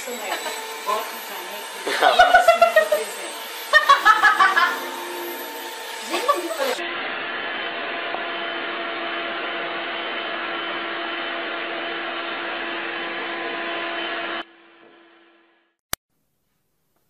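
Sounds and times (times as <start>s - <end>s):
vacuum cleaner running: 0.0s - 15.0s.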